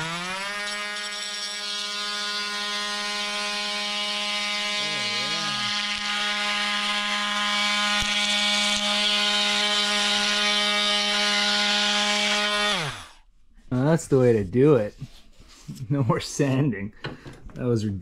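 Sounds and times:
power tool cutting wood: 0.0 - 13.2
power tool spinning down: 0.0 - 13.2.

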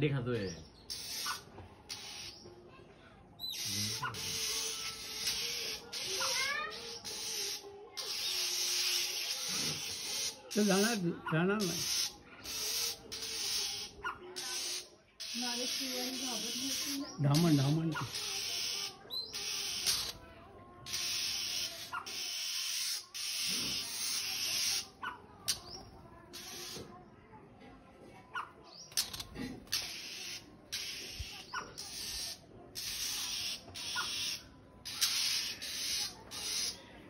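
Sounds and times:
bird chirps: 0.4 - 2.5, 3.4 - 10.8, 11.6 - 20.2
bird rasping alarm calls: 0.9 - 2.4, 3.4 - 11.0, 11.6 - 20.2, 20.9 - 25.7, 26.3 - 26.8, 28.9 - 36.8.

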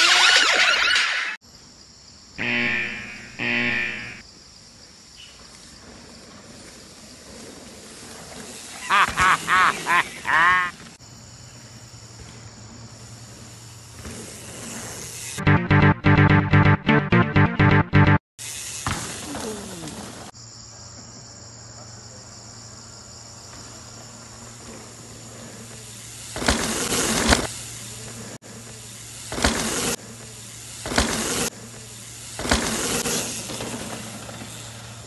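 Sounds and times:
high-pitched insect buzz: 2.3 - 4.3.

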